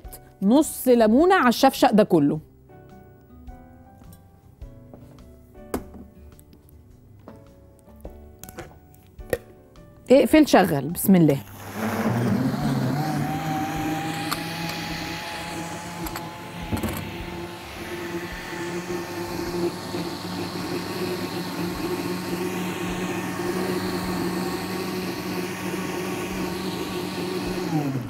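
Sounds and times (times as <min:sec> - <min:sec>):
electric blender running: 0:11.4 - 0:28.0.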